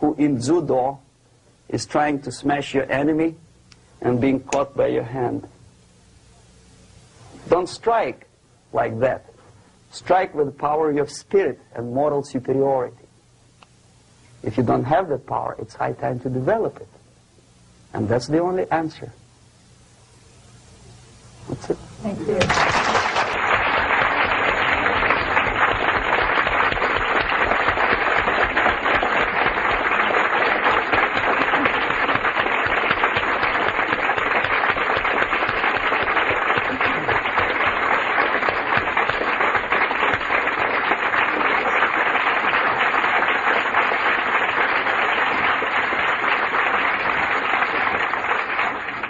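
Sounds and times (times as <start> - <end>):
audience applauding: 22.4 - 49.0.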